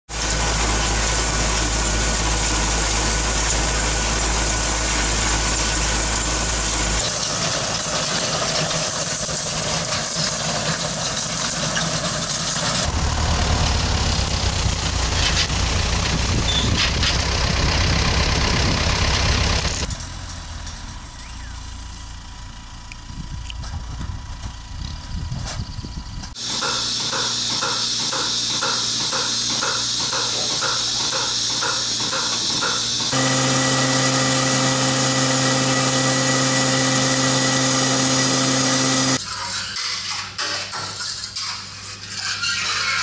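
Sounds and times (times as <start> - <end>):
tractor engines running: 0.1 - 26.4, 30.4 - 39.2.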